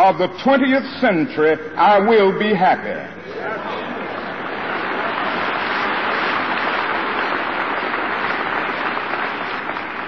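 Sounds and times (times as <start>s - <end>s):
crowd applauding: 3.6s - 10.0s.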